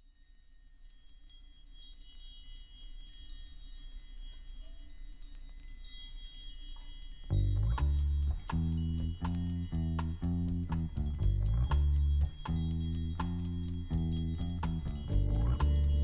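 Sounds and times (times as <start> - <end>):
chimes ringing: 0.0 - 16.0
band with deep bass notes: 7.3 - 16.0.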